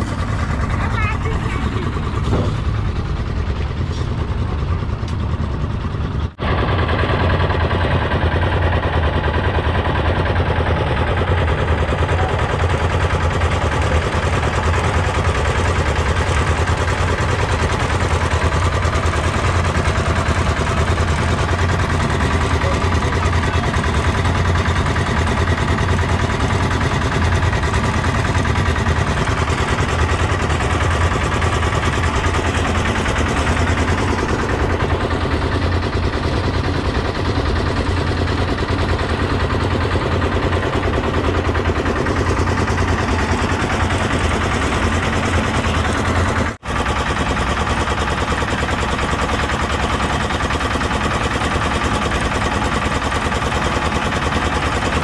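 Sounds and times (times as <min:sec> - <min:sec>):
heavy machinery running: 0:00.0 - 0:55.0.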